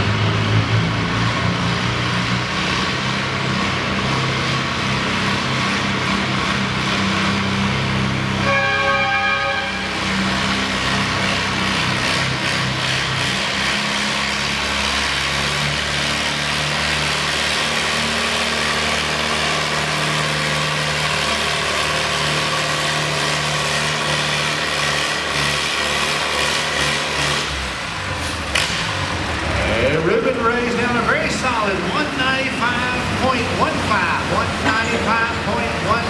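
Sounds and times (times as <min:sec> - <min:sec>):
tractor engine working hard: 0:00.0 - 0:36.0.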